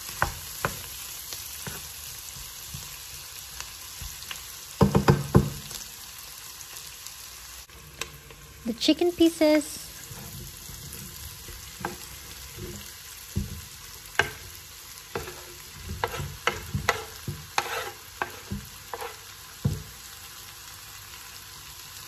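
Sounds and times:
food sizzling in pan: 0.0s - 22.0s
wooden spoon knocking on board: 4.8s - 5.6s, 13.3s - 14.4s, 15.1s - 19.9s.

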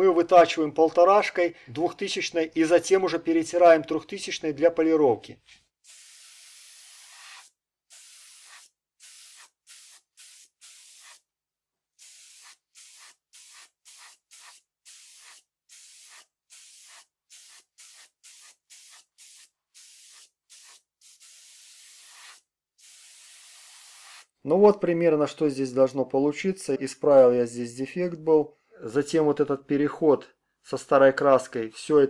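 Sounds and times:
paint spray gun hissing: 5.9s - 11.2s, 12.0s - 24.3s.

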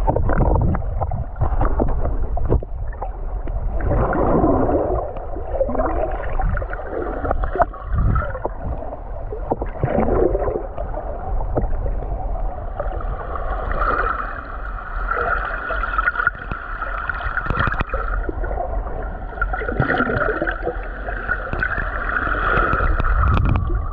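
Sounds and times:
underwater water gurgling: 0.0s - 23.9s
underwater clicks: 16.1s - 18.1s, 21.3s - 23.9s.

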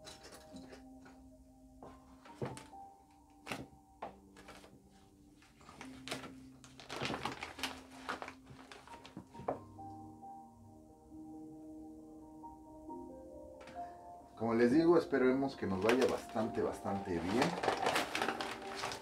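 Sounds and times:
soft background music: 0.0s - 19.0s
plastic bag crackling: 5.6s - 9.6s, 15.5s - 19.0s.

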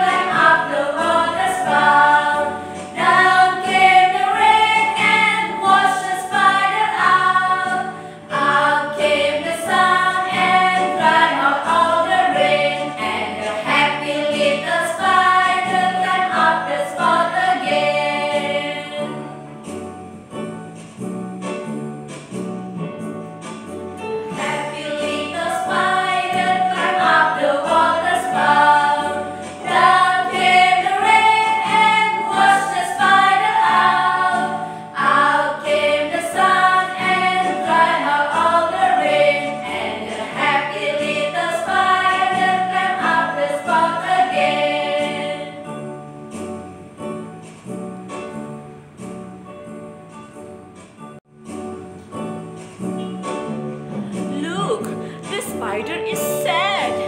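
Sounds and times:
women singing: 0.0s - 19.3s, 24.3s - 45.7s, 54.1s - 57.0s
keyboard accompaniment: 0.0s - 57.0s.

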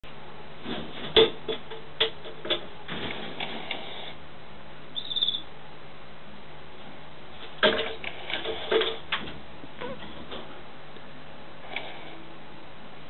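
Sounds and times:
high chattering squeak: 5.0s - 5.5s.

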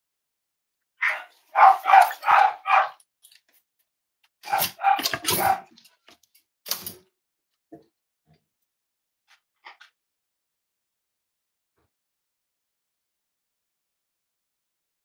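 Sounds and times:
dog barking: 1.0s - 3.0s, 4.4s - 5.8s.

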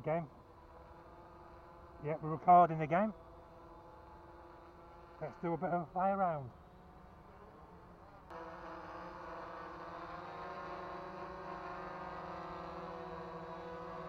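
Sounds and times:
drone propellers buzzing: 0.0s - 14.0s.

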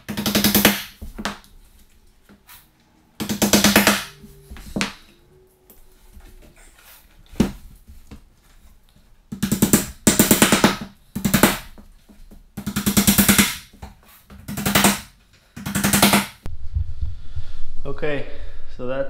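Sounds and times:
hammer striking wooden door: 3.2s - 4.2s.

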